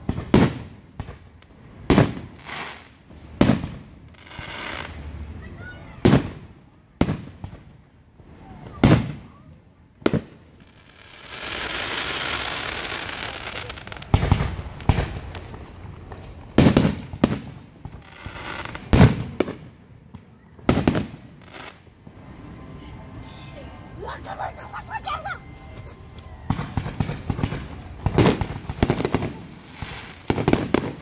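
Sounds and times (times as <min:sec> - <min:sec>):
fireworks booming: 0:00.0 - 0:22.3, 0:26.4 - 0:31.0
fireworks hiss: 0:01.5 - 0:05.4, 0:10.1 - 0:19.6, 0:26.6 - 0:31.0.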